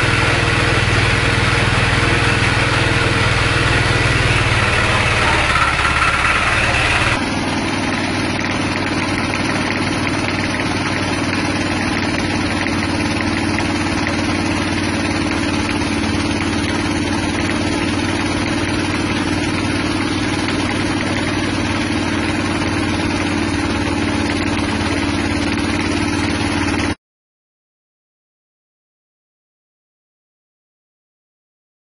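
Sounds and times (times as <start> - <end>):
small petrol engine running: 0.0 - 27.0.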